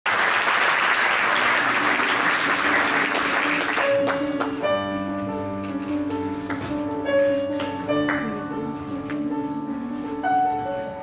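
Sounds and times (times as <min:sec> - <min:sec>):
audience applause: 0:00.1 - 0:04.6
piano sustained notes: 0:00.7 - 0:11.0.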